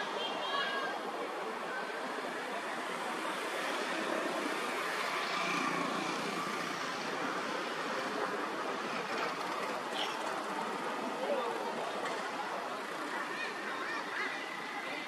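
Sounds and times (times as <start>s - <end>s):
rushing background noise: 0.0s - 15.0s.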